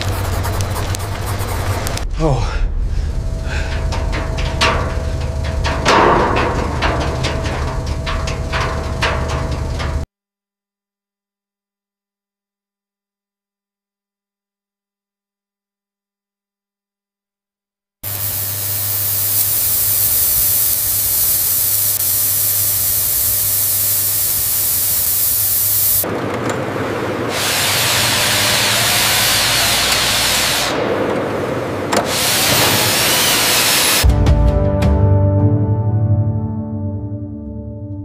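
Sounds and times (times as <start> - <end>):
low hum: 0.0 - 10.1
loud steady hiss: 18.0 - 26.0
music: 34.0 - 38.0.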